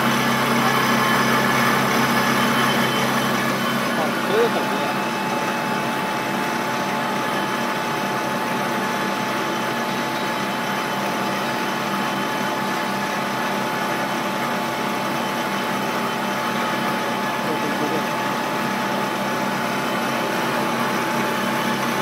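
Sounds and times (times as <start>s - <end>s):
lathe machine hum with whine: 0.0s - 22.0s.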